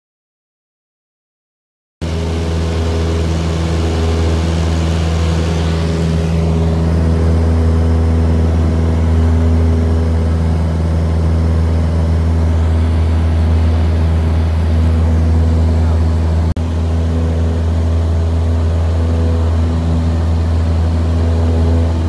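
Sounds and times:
propeller aircraft engine drone: 2.0s - 22.0s.

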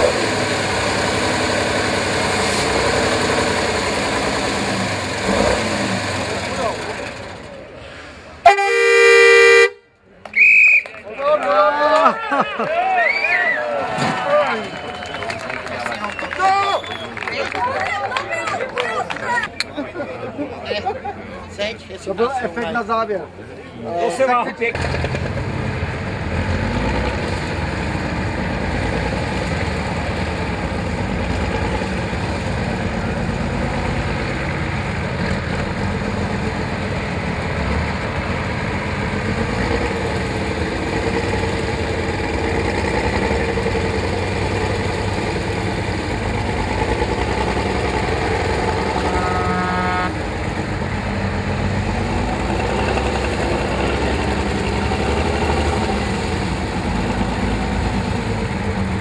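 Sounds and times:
truck engine working hard: 0.0s - 10.6s, 12.6s - 59.0s
horn-like tone: 8.4s - 10.0s, 48.9s - 50.2s.

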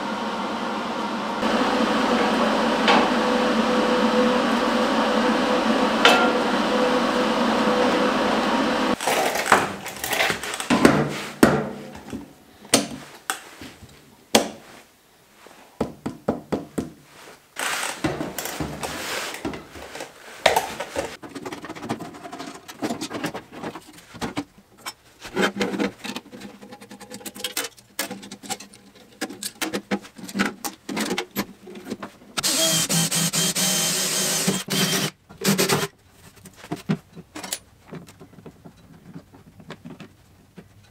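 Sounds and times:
steady machine hum: 0.0s - 9.0s
metal parts clicking and knocking: 26.0s - 31.5s
power drill boring into sheet steel: 32.4s - 35.8s.

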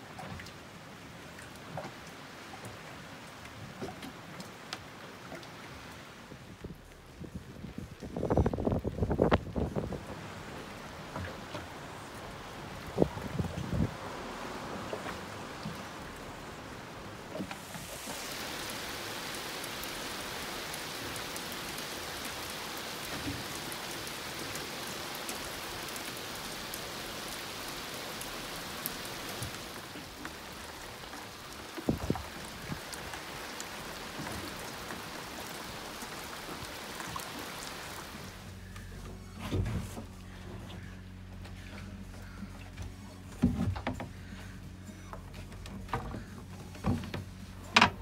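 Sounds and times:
heavy rain on sea and deck: 0.0s - 48.0s.

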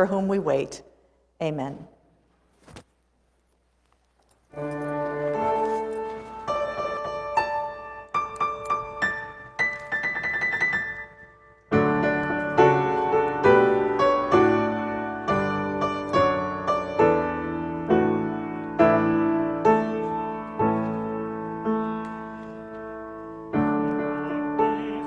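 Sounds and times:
piano playing: 4.5s - 25.0s.

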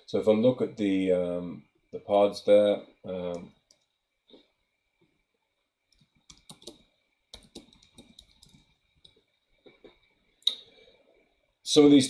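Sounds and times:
typing on computer keyboard: 6.0s - 9.2s.

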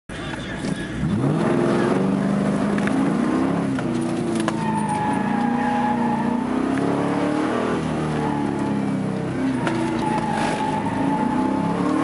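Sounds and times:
car engine revving: 0.6s - 12.0s.

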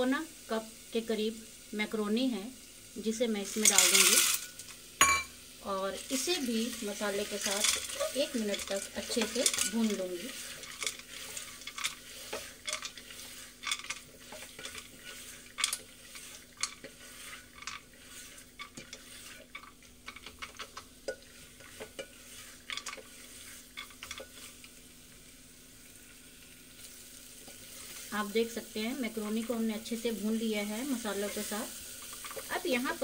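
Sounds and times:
faint sizzle: 0.0s - 33.0s
spatula scraping a pot: 7.2s - 24.7s, 27.4s - 28.1s.

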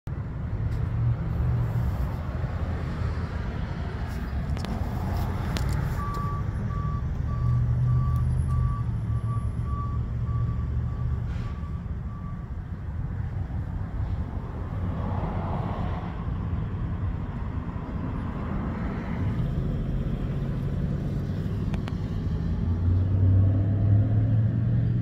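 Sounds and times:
reversing alarm beeping: 6.0s - 12.7s.

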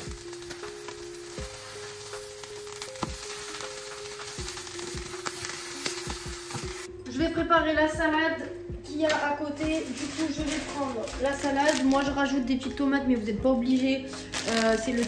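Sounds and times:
steaks sizzling in oil: 0.0s - 6.9s.

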